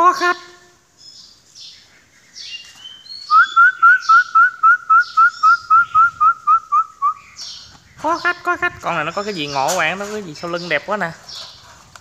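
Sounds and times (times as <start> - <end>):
myna whistling rising notes: 2.8 - 7.4.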